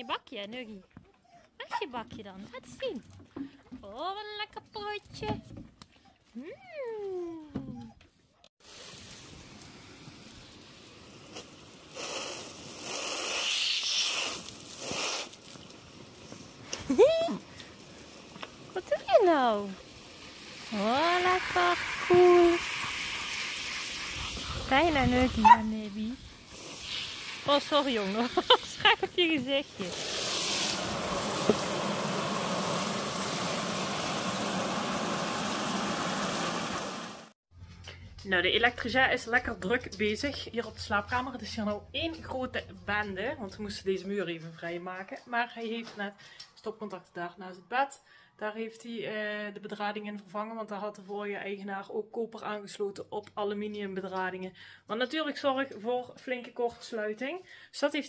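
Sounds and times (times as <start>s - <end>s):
water spraying from hose: 8.6s - 37.3s.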